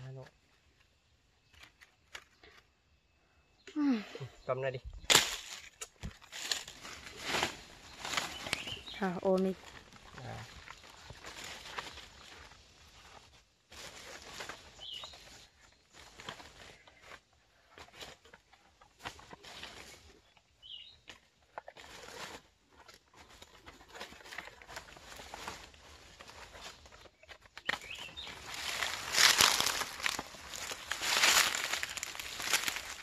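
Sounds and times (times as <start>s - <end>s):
footsteps on dry leaves: 5.1s - 15.1s, 27.7s - 33.0s
rustling: 5.1s - 20.1s, 21.6s - 33.0s.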